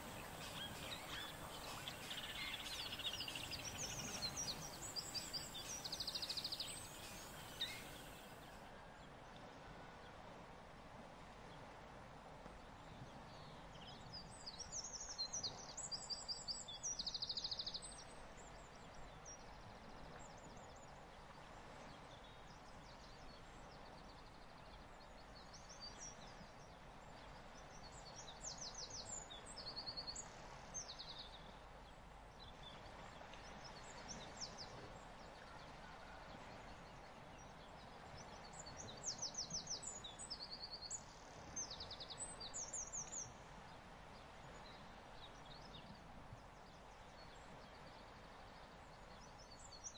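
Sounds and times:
bird chirping trills: 0:00.0 - 0:08.4
faint steady hiss: 0:00.0 - 0:16.6.

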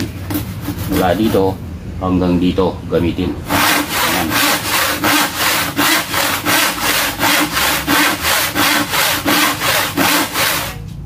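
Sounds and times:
hand saw cutting wood: 0:00.3 - 0:01.5, 0:03.4 - 0:10.8.

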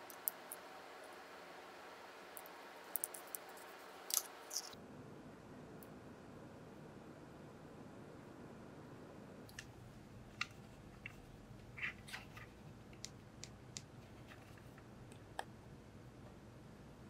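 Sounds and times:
faint steady hiss: 0:00.0 - 0:17.0.

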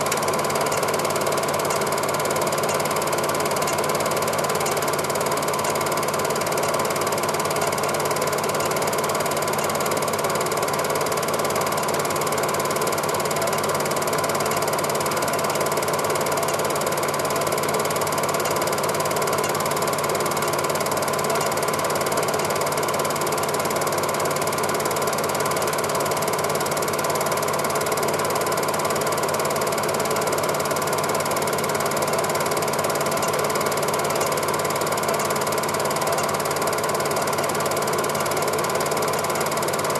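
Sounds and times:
motor hum: 0:00.0 - 0:24.1
film projector clatter: 0:00.0 - 0:39.9.

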